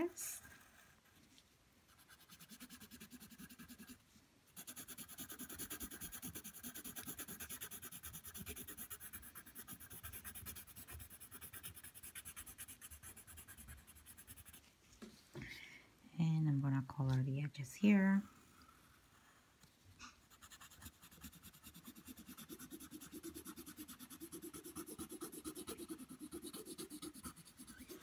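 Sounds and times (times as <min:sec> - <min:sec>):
pencil scribbling on paper: 0:01.9 - 0:04.0, 0:04.6 - 0:14.7, 0:20.2 - 0:28.0.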